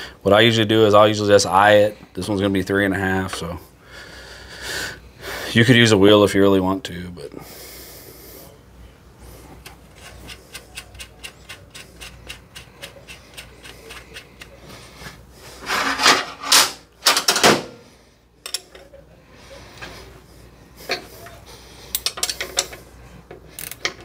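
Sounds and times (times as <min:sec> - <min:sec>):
hand ratchet clicking: 0:09.9 - 0:14.6, 0:21.9 - 0:22.8, 0:23.6 - 0:24.0
metal scraping: 0:09.9 - 0:16.8.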